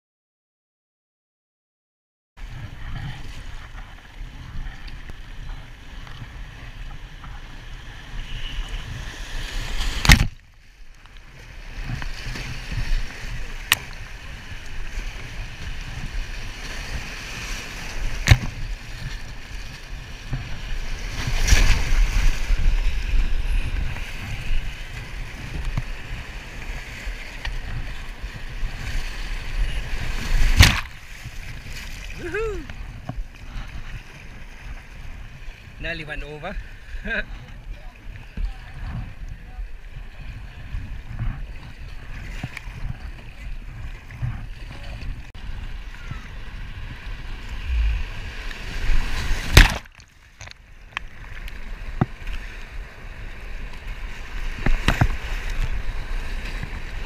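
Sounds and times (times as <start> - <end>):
paddle strokes splashing: 2.4 - 35.8, 36.6 - 57.0
whitewater rushing: 47.2 - 50.0.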